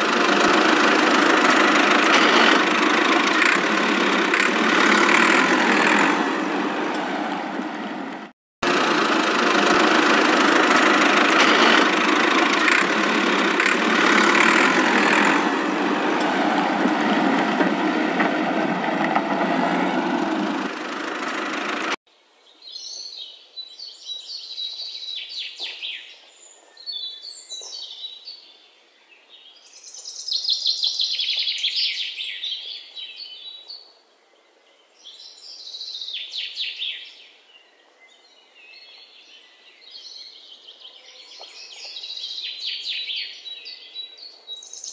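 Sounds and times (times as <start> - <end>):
birds chirping: 0.0 - 22.0
steady engine noise: 0.0 - 22.0.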